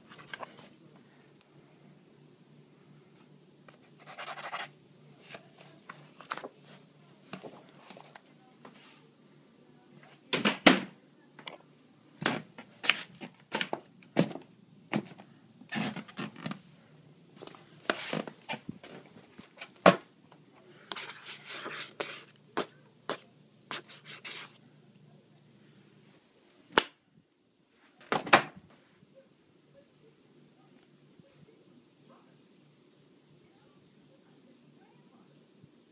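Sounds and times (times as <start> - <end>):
low steady hum: 0.0 - 10.3, 10.9 - 27.9.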